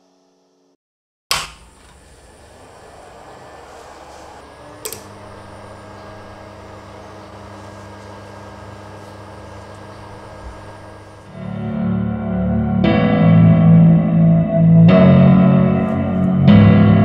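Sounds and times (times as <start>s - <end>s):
amplifier hiss and mains hum: 1.3s - 11.8s
relay click: 4.8s - 5.2s.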